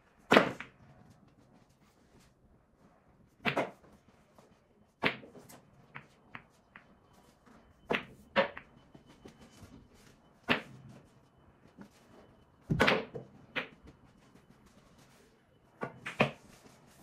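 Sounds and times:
pool balls clacking: 7.8s - 8.8s, 12.6s - 14.1s.

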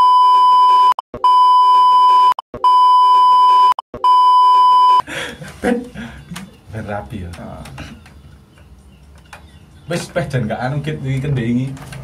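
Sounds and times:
censor beep tone: 0.0s - 5.0s
laughter: 5.0s - 6.6s
speech: 6.7s - 8.0s, 9.9s - 11.9s.

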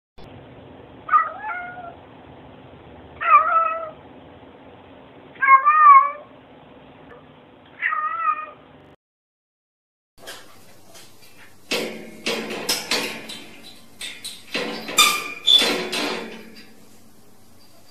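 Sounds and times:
cat meowing: 1.1s - 2.0s, 3.2s - 4.0s, 5.4s - 6.3s, 7.8s - 8.6s.

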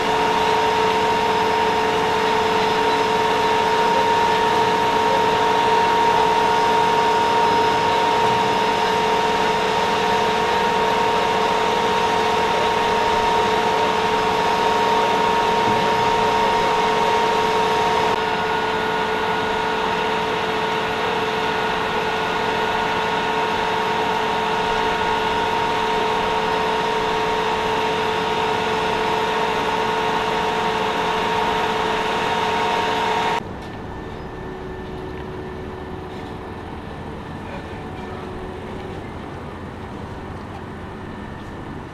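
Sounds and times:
high motor whine: 0.0s - 41.9s
machinery drone: 0.0s - 41.9s.

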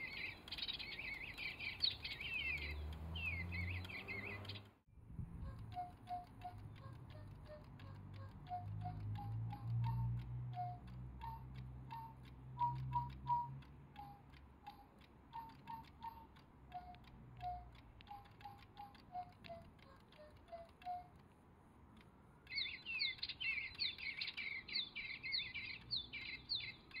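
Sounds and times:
electronic chirping and tweeting: 0.0s - 4.7s, 5.4s - 21.2s, 22.5s - 27.0s
steady ticking: 0.0s - 27.0s
toy birds piping a tune: 0.0s - 27.0s.

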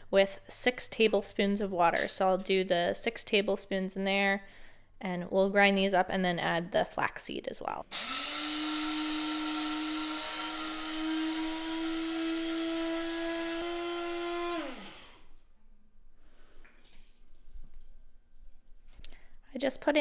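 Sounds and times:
electric grinder motor whine: 7.9s - 15.3s.

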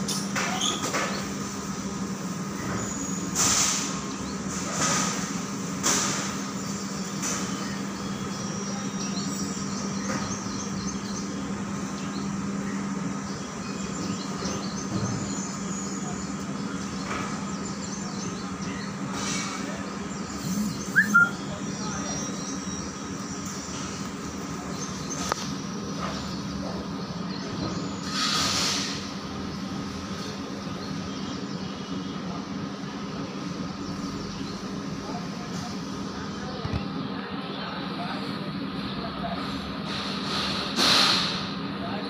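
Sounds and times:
hydraulic pump motor humming: 20.2s - 21.5s
hydraulic rushing bursts: 20.2s - 21.6s.

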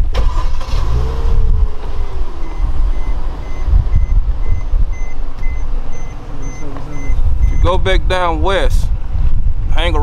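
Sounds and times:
loud low rumble: 0.9s - 9.8s
car warning chime beeping: 2.0s - 7.8s.

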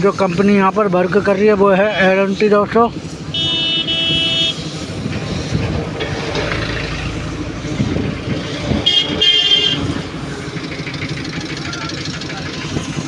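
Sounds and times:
highway traffic passing: 0.0s - 13.0s
lorry engines rumbling: 0.0s - 13.0s
vehicle horn honking: 3.3s - 4.7s, 8.8s - 9.9s.

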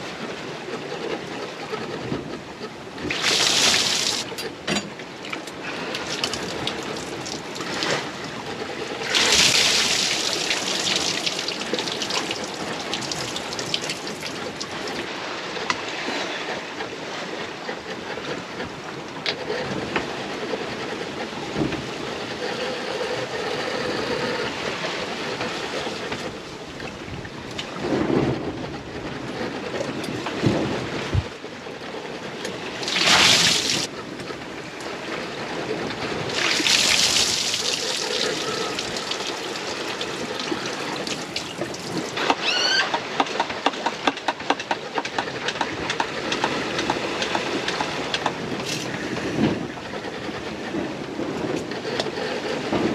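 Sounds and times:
sea washing past boat hull: 0.0s - 52.9s
wind: 0.0s - 52.9s
loud rushes of water: 3.0s - 16.6s, 32.5s - 33.9s, 35.6s - 45.4s.

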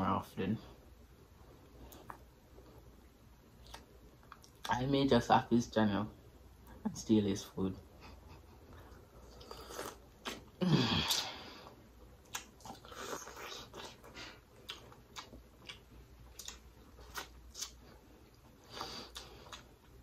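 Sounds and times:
person chewing corn on the cob: 8.8s - 10.5s, 12.0s - 20.0s.

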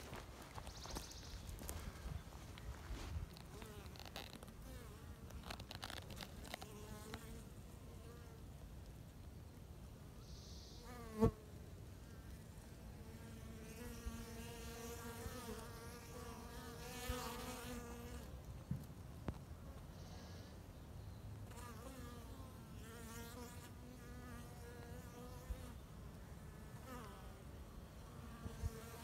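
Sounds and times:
loud bee buzz close by: 6.2s - 8.4s, 10.7s - 11.5s, 12.6s - 18.3s, 21.4s - 29.0s.

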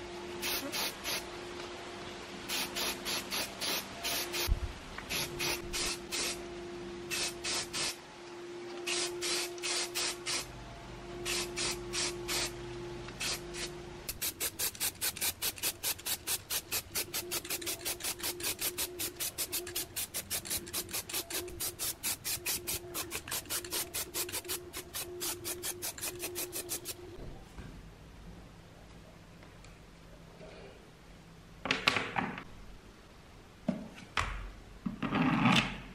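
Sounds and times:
spray paint can hissing: 0.4s - 1.2s, 2.5s - 4.5s, 5.1s - 6.4s, 7.1s - 8.0s, 8.8s - 10.5s, 11.2s - 12.5s, 13.2s - 27.0s.

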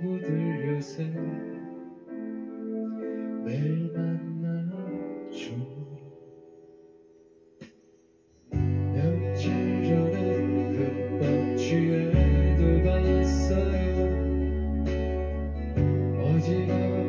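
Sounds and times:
live pop band playing: 8.6s - 17.0s.

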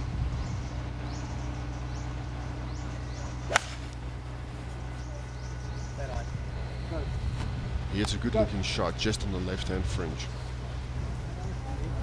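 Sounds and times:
club hitting golf ball: 3.5s - 4.0s
golf club swish: 3.5s - 4.0s.

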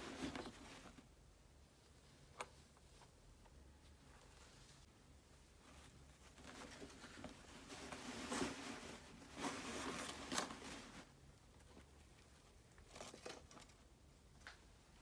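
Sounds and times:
cloth bag rustling on cardboard: 5.6s - 11.1s.

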